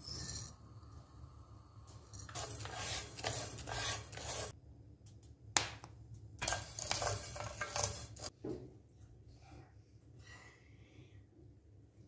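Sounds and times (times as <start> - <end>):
spatula scraping grains in pan: 2.2 - 4.6, 6.4 - 8.3.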